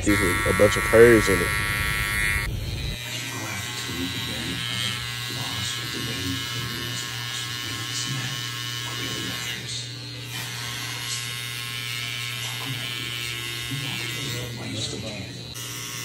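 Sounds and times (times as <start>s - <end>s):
hair trimmer buzzing: 0.0s - 16.0s.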